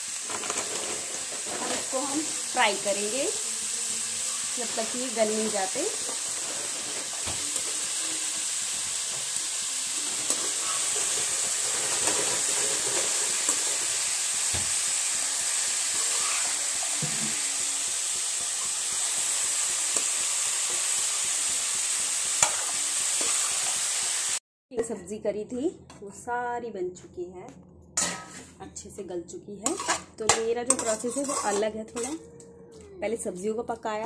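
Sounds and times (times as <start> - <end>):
vegetables sizzling in oil: 0.0 - 24.4, 29.6 - 32.2
metal spatula scraping a pan: 0.1 - 3.2, 3.8 - 9.4, 10.0 - 14.7, 15.8 - 17.4, 22.3 - 23.8, 28.0 - 28.6, 29.6 - 32.2.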